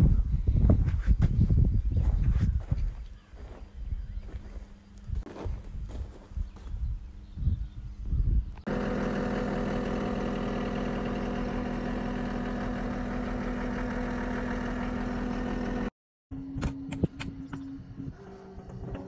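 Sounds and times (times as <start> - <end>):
footsteps and handling thumps: 0.6 - 6.8
engine idling: 8.7 - 15.9.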